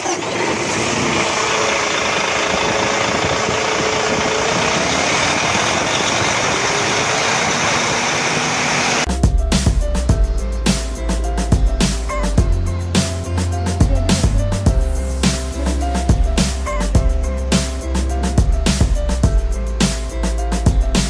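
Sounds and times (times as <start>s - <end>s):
bus engine idling: 0.0s - 9.1s
music with heavy beat: 9.0s - 21.0s.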